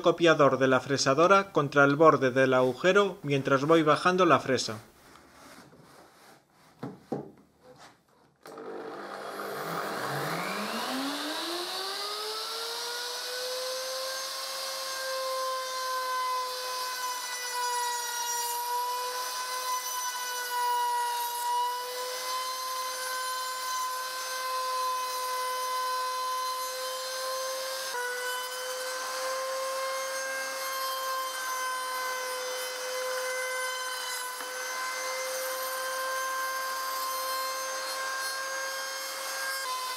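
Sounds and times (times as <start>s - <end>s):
router motor whining: 8.4s - 15.6s, 21.8s - 39.9s.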